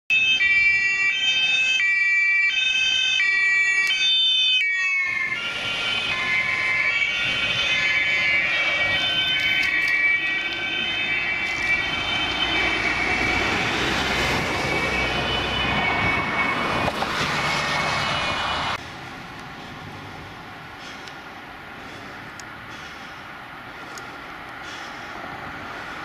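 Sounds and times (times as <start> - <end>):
overlapping siren tones: 0.1 - 18.8
two-tone emergency siren: 0.1 - 18.8
road noise: 0.1 - 26.0.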